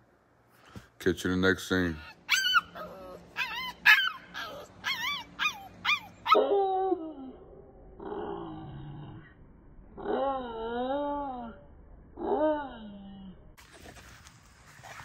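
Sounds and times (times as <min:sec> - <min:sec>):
puppy yipping: 0:02.0 - 0:06.5
puppy howling: 0:02.0 - 0:08.6.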